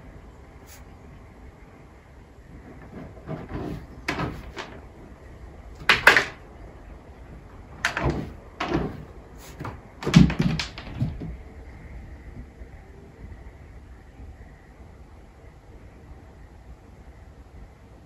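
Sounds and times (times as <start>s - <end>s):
irregular knocks and clatters: 2.5s - 6.5s, 7.3s - 11.5s.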